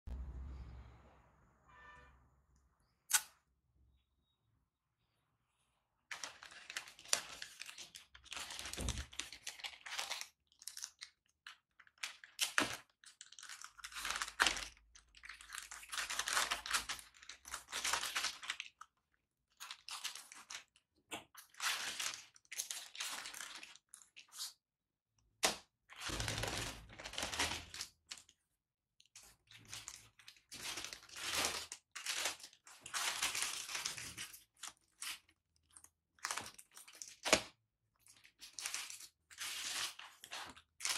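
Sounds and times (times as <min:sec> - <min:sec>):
plastic bag crinkling and tearing: 0:06.1 - 0:24.6, 0:25.9 - 0:28.4, 0:29.1 - 0:40.9.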